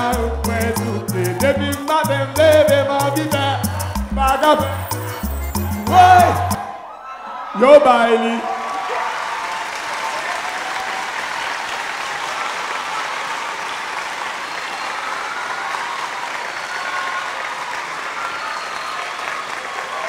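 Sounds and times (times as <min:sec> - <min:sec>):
voices cheering: 0:04.4 - 0:20.0
audience applauding: 0:08.4 - 0:20.0.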